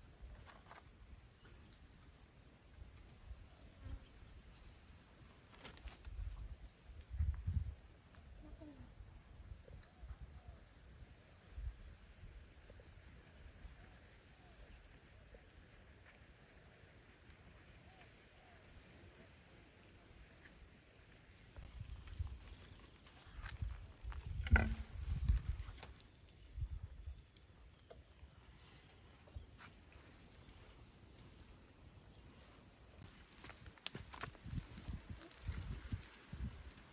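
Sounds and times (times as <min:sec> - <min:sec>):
insects trilling: 0:00.0 - 0:36.9.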